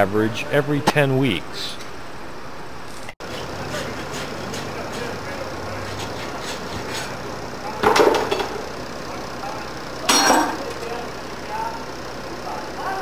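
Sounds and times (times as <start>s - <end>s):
hoof rasp scraping hoof: 5.8s - 7.2s.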